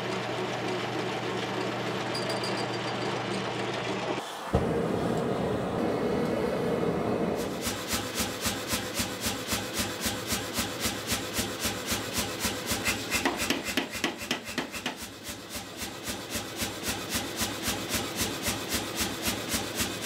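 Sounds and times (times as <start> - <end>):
gas forge burner roaring: 3.4 - 20.0
power hammer striking steel: 12.3 - 16.2.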